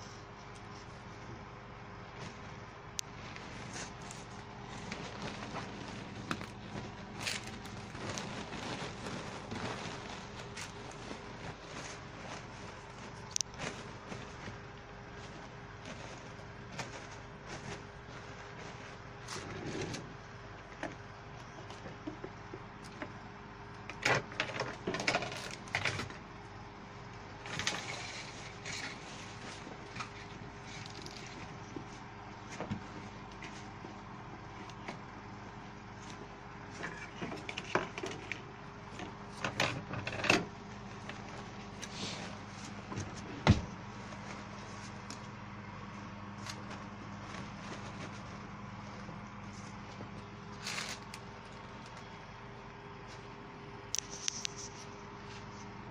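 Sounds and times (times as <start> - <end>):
faint steady hum: 0.0 - 55.9
tulle wrapping rustling: 2.0 - 20.4, 27.4 - 36.8, 40.6 - 52.2.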